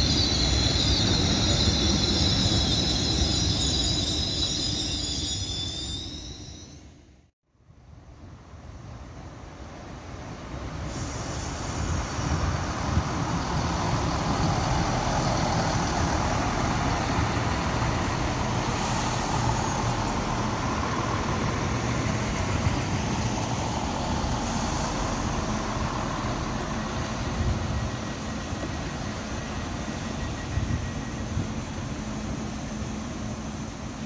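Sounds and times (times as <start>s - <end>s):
train wheels rumbling on rails: 0.0s - 6.5s, 9.9s - 34.0s
diesel train engines running: 8.8s - 34.0s.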